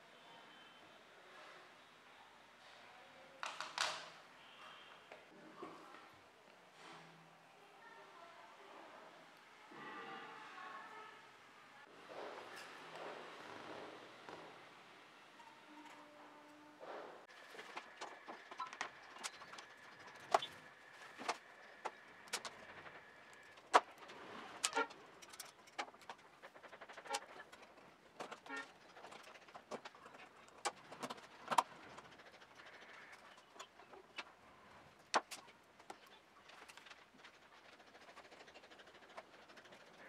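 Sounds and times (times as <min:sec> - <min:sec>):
plastic parts and screws clicking: 0:17.8 - 0:32.2.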